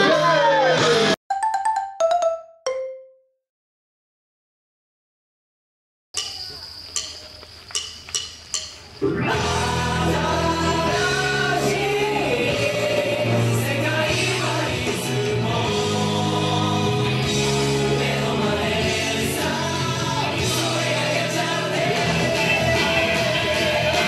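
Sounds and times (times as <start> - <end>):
male group singing pop song: 9.3 - 24.0.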